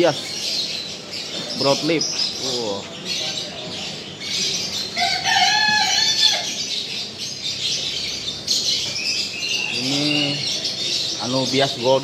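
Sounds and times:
small birds chirping: 0:00.0 - 0:12.0
rooster crowing: 0:04.9 - 0:06.7.

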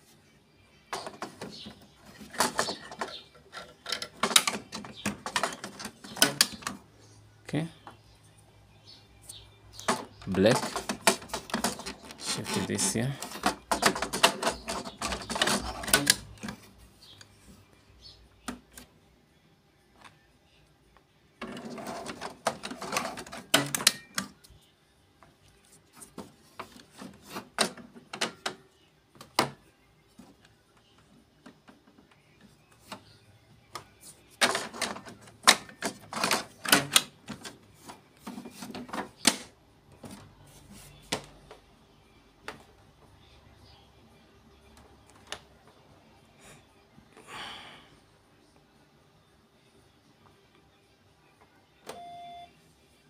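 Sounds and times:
plastic clicking and rattling: 0:01.0 - 0:06.8, 0:09.8 - 0:16.6.

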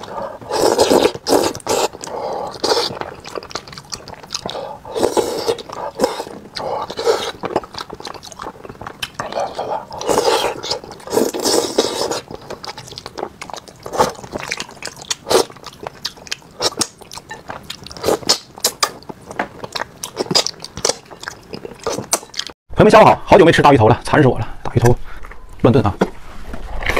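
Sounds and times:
wet chewing and lip smacks: 0:01.0 - 0:04.6, 0:05.5 - 0:11.1.

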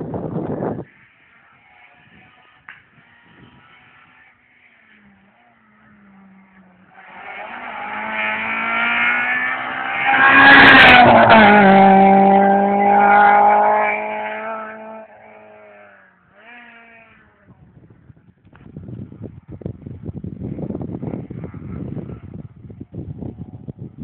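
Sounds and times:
rally car passing by: 0:00.4 - 0:17.5.

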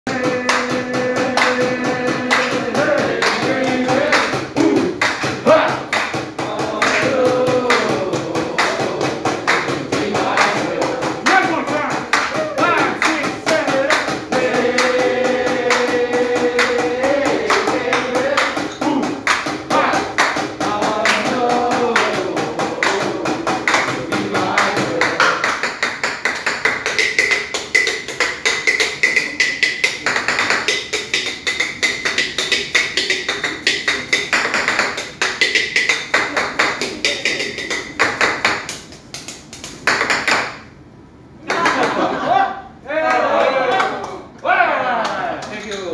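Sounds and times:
person singing a tune: 0:00.1 - 0:25.3.

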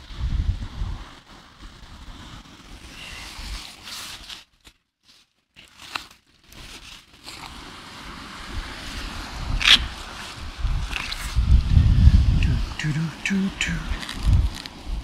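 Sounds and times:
wind buffeting microphone: 0:00.0 - 0:01.1, 0:08.4 - 0:15.0.

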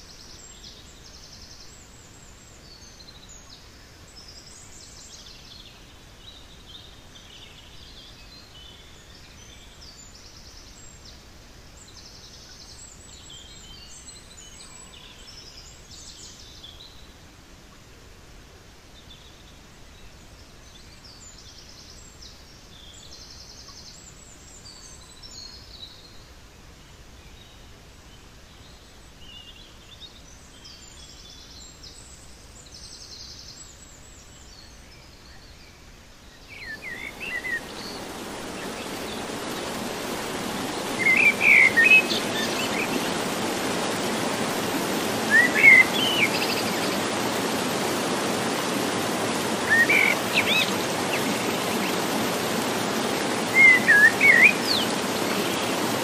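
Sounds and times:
songbirds chirping: 0:00.0 - 0:56.0
stream flowing: 0:36.5 - 0:56.0.

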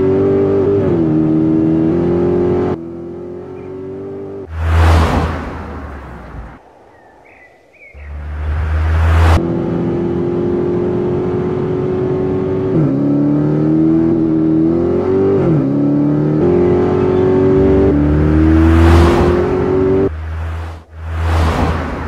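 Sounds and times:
car engine running at speed: 0:08.0 - 0:22.0.

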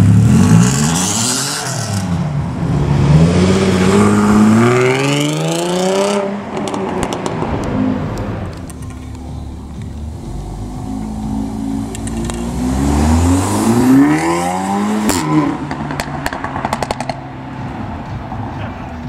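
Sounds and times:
car engine accelerating: 0:00.0 - 0:19.0
exhaust pops and crackles: 0:06.6 - 0:09.2, 0:15.7 - 0:17.2.

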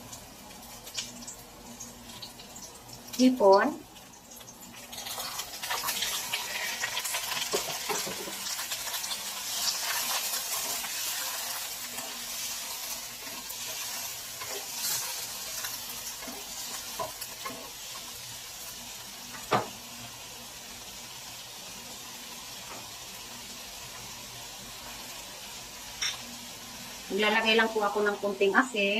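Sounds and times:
shrimp sizzling in hot oil: 0:00.0 - 0:28.9
spatula scraping a pan: 0:09.4 - 0:17.7.

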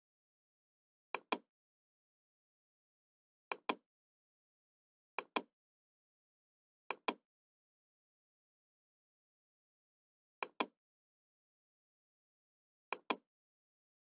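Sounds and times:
computer mouse clicking: 0:01.2 - 0:01.5, 0:03.5 - 0:03.8, 0:05.2 - 0:05.5, 0:06.9 - 0:07.2, 0:10.4 - 0:10.7, 0:12.9 - 0:13.2.

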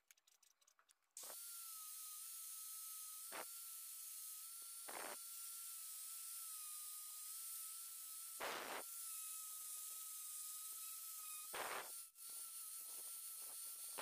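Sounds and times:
angle grinder whine: 0:01.2 - 0:09.6, 0:10.7 - 0:11.9.

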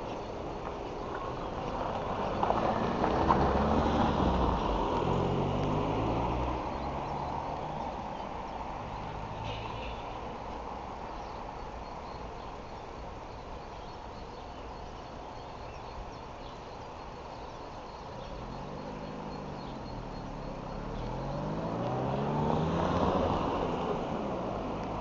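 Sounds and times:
engine revving: 0:02.1 - 0:07.5, 0:18.2 - 0:25.0.

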